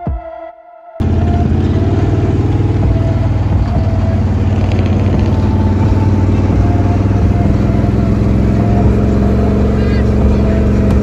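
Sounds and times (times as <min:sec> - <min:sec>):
truck engine and exhaust pulsing: 0:01.0 - 0:11.0.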